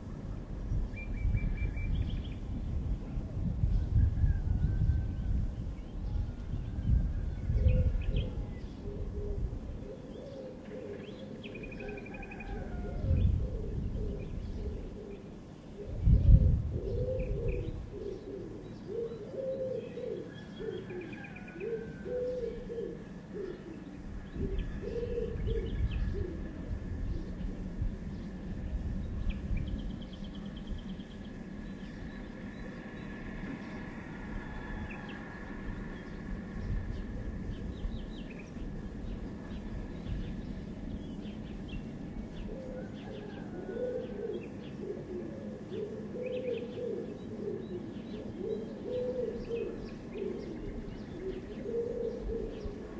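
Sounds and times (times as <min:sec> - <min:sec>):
dove cooing: 0:06.1 - 0:52.9
small birds chirping: 0:14.0 - 0:34.2, 0:35.0 - 0:52.9.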